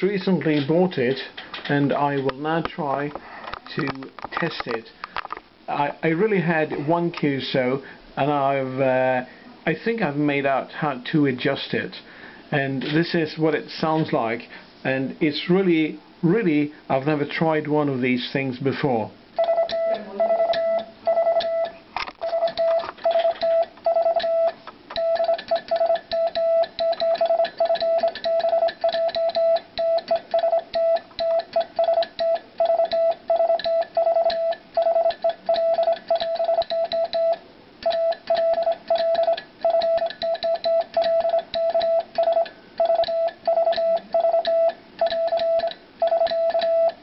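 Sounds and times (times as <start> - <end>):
morse code beeps: 19.4 - 47.0
telegraph key clicking: 24.9 - 47.0.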